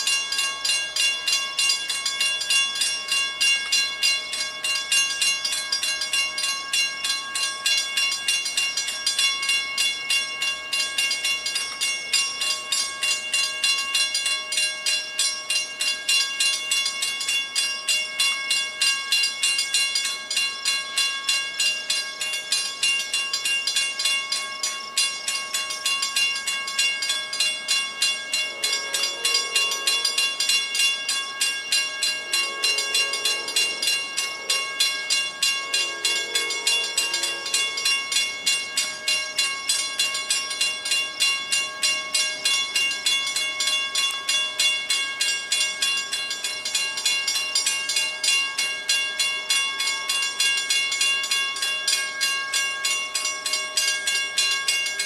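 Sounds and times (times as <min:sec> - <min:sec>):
crossing warning bell ringing: 0:00.0 - 0:55.0
distant locomotive horn: 0:28.5 - 0:30.2, 0:32.2 - 0:34.8, 0:35.6 - 0:37.8.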